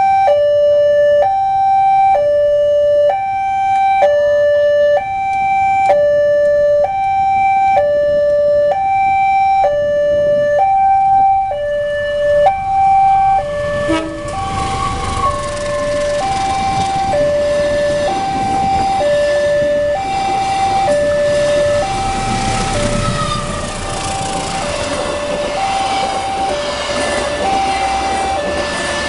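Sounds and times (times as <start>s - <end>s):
passenger train rumbling: 9.6s - 29.0s.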